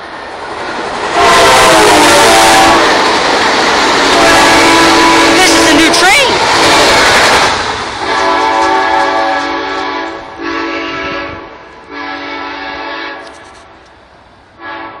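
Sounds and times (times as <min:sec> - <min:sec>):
train horn blasts: 0:01.1 - 0:03.2, 0:04.1 - 0:06.1, 0:08.0 - 0:13.5, 0:14.6 - 0:15.0.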